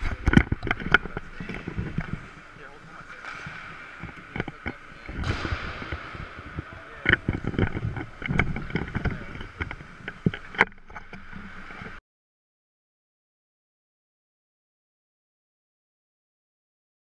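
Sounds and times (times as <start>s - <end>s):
voices: 0.0s - 10.7s
hockey sticks and pucks clacking: 0.0s - 12.0s
rink background: 0.0s - 12.0s.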